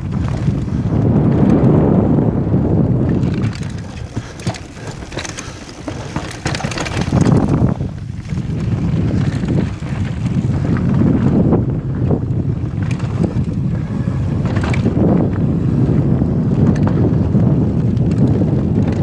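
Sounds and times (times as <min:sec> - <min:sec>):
wind rushing over microphone: 0:00.0 - 0:19.0
bike frame and chain rattling: 0:03.0 - 0:11.4, 0:12.6 - 0:19.0.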